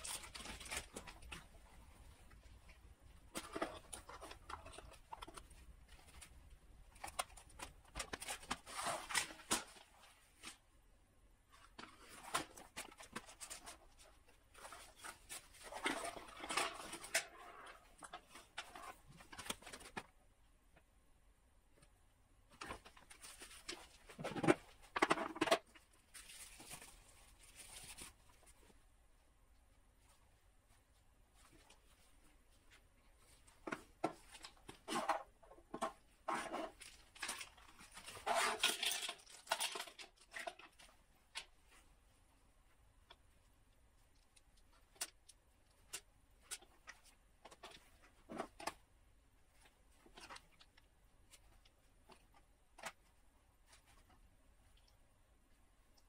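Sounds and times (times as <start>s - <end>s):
packaging rustling: 0.0s - 1.6s
packaging crinkling and rustling: 0.0s - 1.7s, 3.2s - 10.6s, 11.6s - 20.2s, 22.5s - 28.6s, 32.7s - 41.8s.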